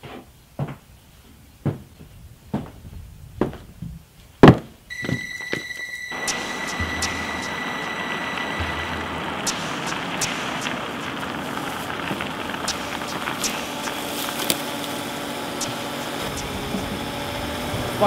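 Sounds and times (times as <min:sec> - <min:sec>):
sharp clicks: 0:04.9 - 0:17.3
tyre and road noise: 0:06.1 - 0:18.0.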